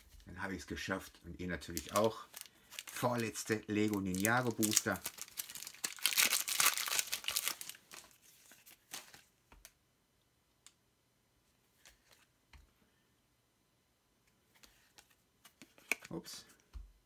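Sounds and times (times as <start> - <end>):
foil pack tearing and crinkling: 1.8 - 8.1.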